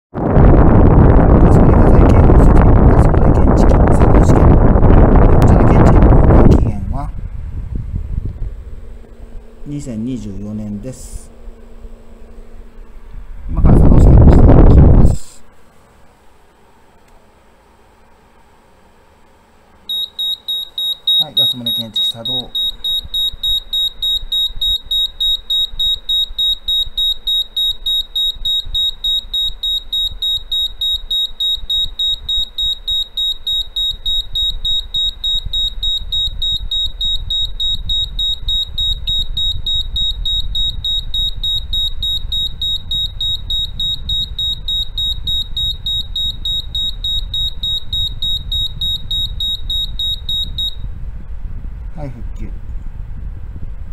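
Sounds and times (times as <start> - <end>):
high-pitched alarm buzzer beeping: 19.9 - 50.9.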